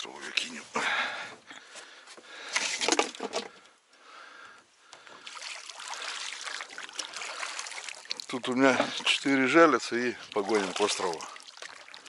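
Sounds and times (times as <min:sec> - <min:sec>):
water splashing around boat: 0:05.0 - 0:12.0.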